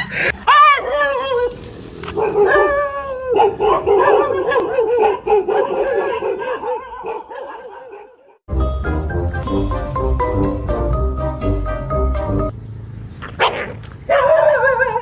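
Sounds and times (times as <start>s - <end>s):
dog howling and yelping: 0.4s - 1.6s, 2.2s - 8.0s, 14.1s - 15.0s.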